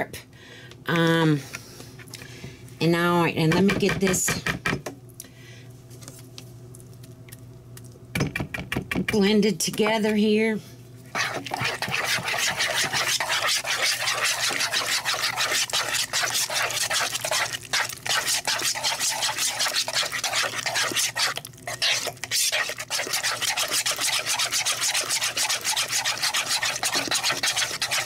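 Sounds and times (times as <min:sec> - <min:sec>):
spoon scraping a plastic bowl: 0:11.1 - 0:28.0.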